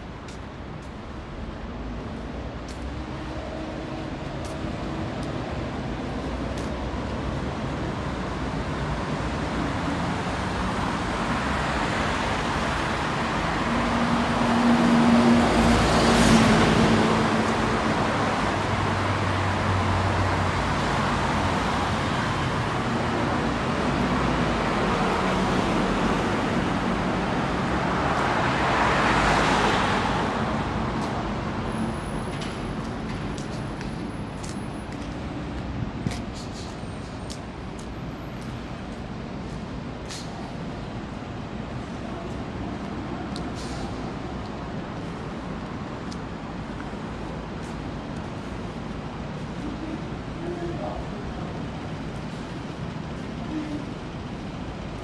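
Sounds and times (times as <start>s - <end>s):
city street traffic: 0.0s - 55.0s.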